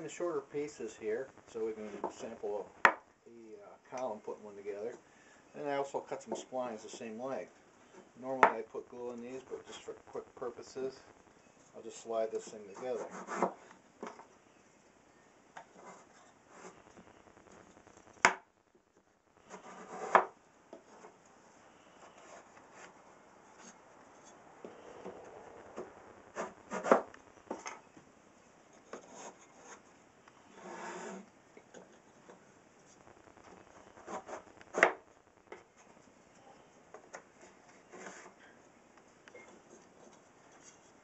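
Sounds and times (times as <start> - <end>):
wood sliding rubs: 22.0 - 27.8.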